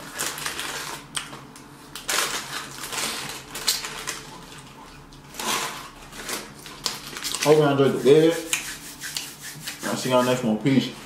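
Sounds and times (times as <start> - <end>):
paper wrapper crinkling: 0.0 - 7.9.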